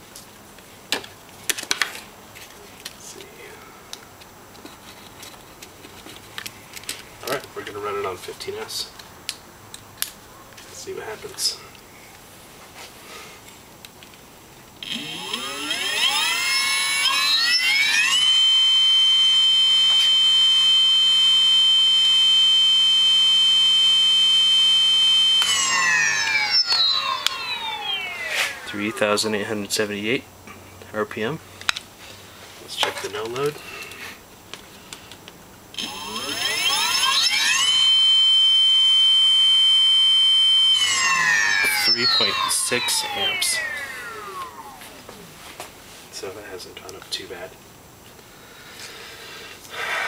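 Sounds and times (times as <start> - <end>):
electric motor whine: 14.8 - 29.4, 35.8 - 45.1.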